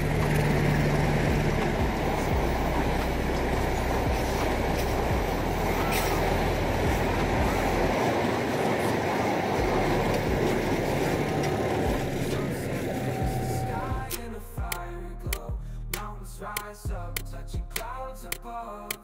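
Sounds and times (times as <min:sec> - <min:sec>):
train wheels rumbling on track: 0:00.0 - 0:14.2.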